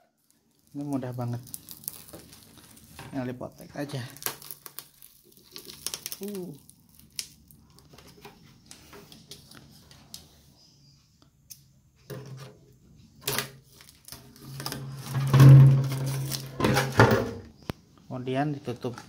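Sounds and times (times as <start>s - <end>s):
plastic wrap clicks and rustles: 0.0s - 10.2s, 13.2s - 16.9s.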